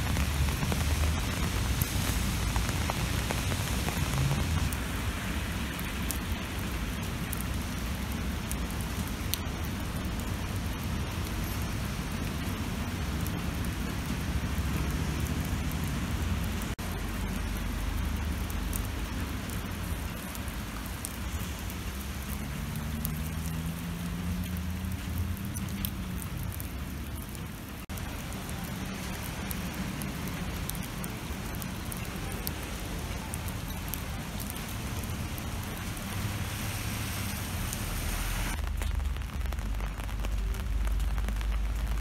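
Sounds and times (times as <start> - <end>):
low rumble of city traffic: 0.0 - 42.0
rain on wet pavement: 0.0 - 42.0
vehicle engine: 21.9 - 26.5.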